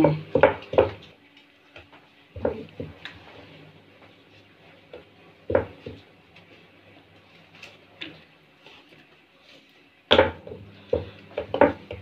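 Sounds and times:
rolling pin on wooden board: 0.0 - 1.0, 10.1 - 12.0.

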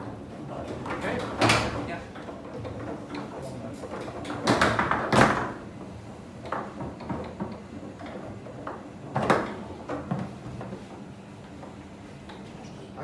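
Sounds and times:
foosball ball clacking: 0.7 - 11.0.

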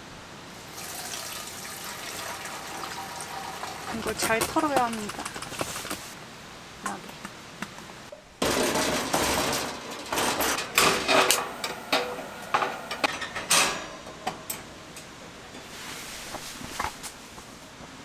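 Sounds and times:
hard objects knocking and clattering: 4.0 - 6.1, 8.4 - 11.4.

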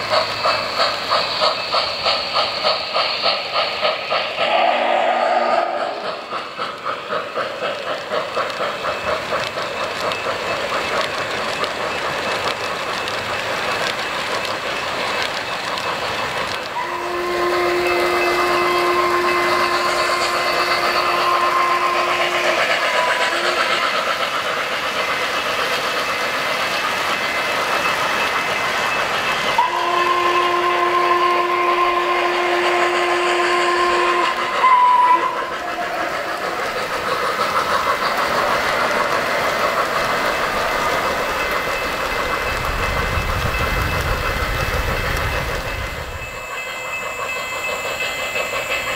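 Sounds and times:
steam locomotive chuffing: 0.0 - 48.9
steam whistle blasts: 4.4 - 6.2, 16.8 - 23.8, 29.6 - 36.2.

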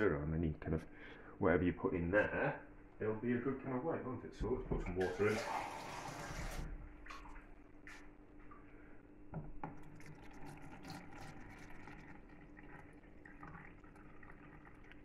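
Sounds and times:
water trickling into container: 5.0 - 8.7, 9.7 - 15.0.

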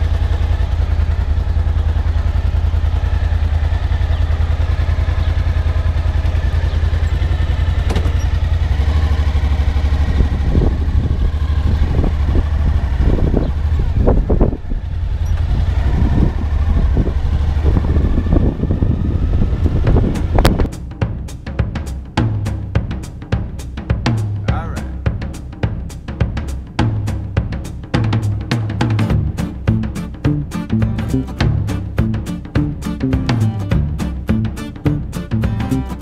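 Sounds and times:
motorcycle engine running: 0.0 - 36.0
irregular thumps: 7.0 - 8.8, 19.7 - 36.0
drum music: 19.8 - 36.0.

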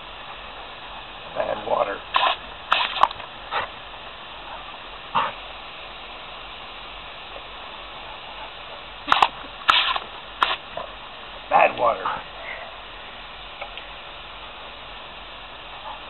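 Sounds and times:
dog barking: 4.4 - 5.4, 8.0 - 9.3.

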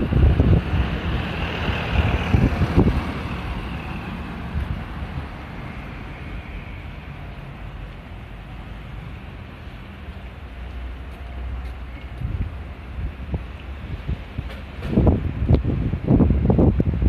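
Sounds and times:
wind buffeting microphone: 0.0 - 6.8, 12.0 - 17.0
vehicle passing by: 0.0 - 9.9.

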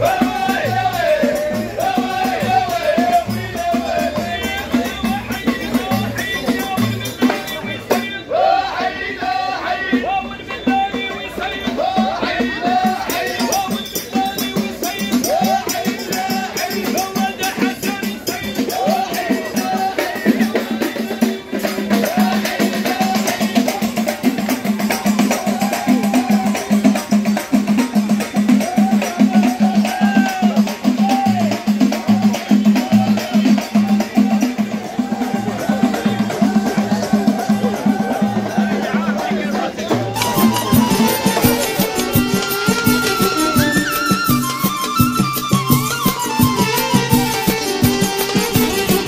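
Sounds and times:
drums in fast rhythm: 0.0 - 49.0
wavering melody line: 40.0 - 49.0.

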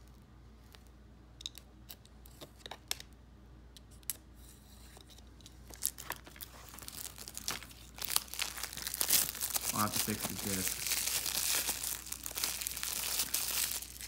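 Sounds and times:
cellophane crinkling: 5.6 - 14.0.

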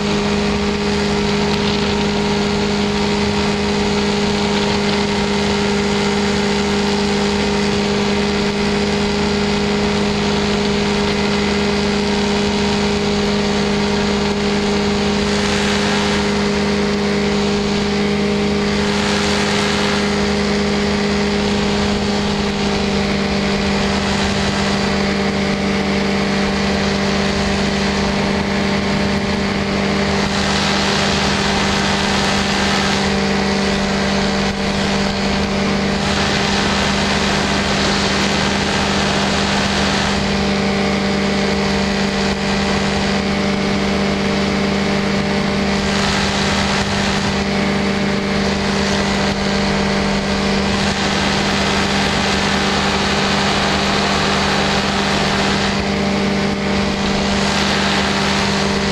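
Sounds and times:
ultralight aircraft engine drone: 0.0 - 58.9
wind rushing over microphone: 0.0 - 58.9.

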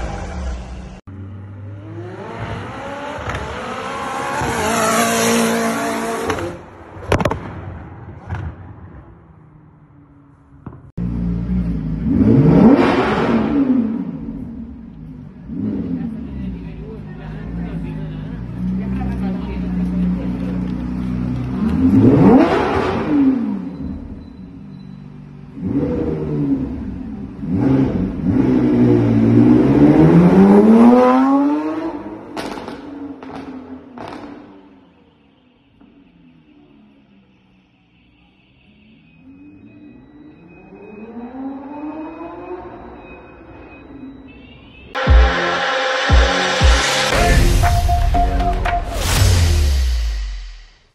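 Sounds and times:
sports car engine revving: 11.0 - 16.4, 21.1 - 23.6.

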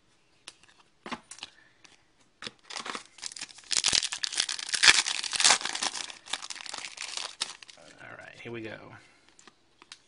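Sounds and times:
wrapper tearing and crinkling: 2.6 - 7.8.

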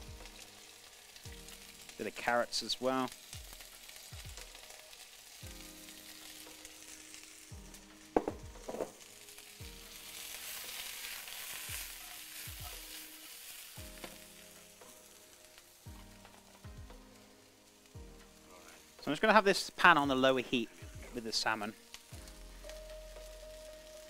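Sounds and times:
vegetables sizzling in oil: 0.0 - 24.0
sharp knocks: 8.2 - 9.0.

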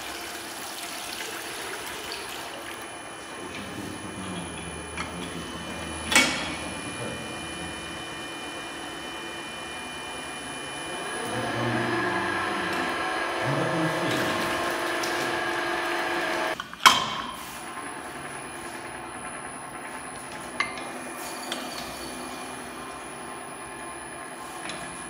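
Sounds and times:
electric drive rising whine: 2.8 - 16.6, 17.6 - 21.2
machine mechanical running: 2.8 - 16.6.

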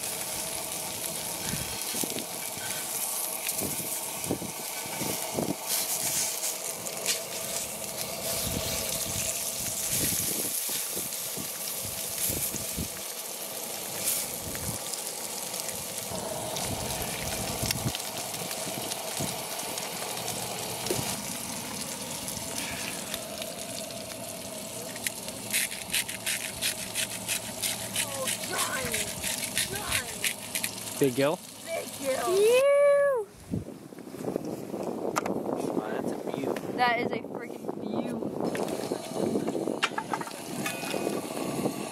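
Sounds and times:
fish sizzling in a skillet: 0.0 - 33.2.

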